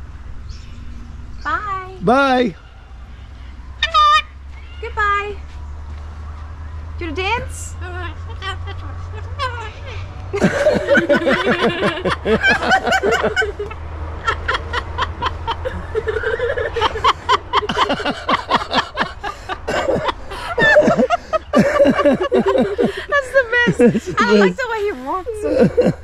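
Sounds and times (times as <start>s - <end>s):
person laughing: 10.4s - 24.5s, 25.4s - 26.0s.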